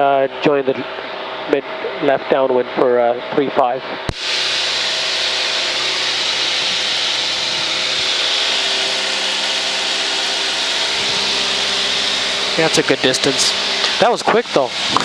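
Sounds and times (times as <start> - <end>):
light aircraft engine and propeller: 0.0 - 15.0
airflow hiss: 4.1 - 15.0.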